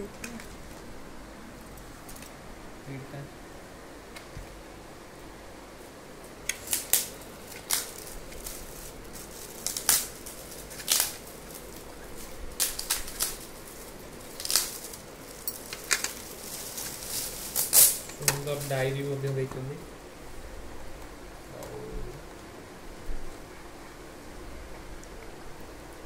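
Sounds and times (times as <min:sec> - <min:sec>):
gift wrap crinkling and tearing: 0:06.5 - 0:19.7.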